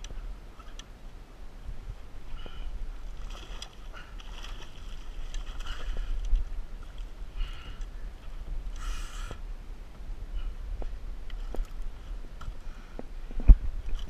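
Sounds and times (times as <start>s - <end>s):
wind rumble on microphone: 0.0s - 14.0s
water sloshing against kayak hull: 2.3s - 8.4s.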